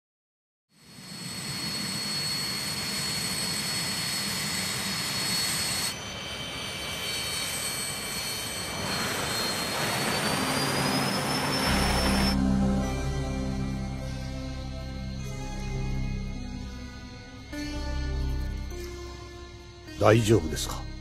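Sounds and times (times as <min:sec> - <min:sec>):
jet engine roar with whine: 0:00.8 - 0:12.5
music: 0:10.4 - 0:21.0.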